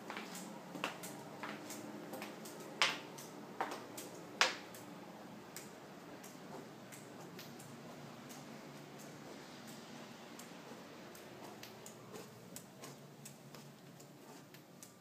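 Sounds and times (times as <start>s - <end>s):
footsteps on hard floor: 0.0s - 3.0s, 10.7s - 14.7s.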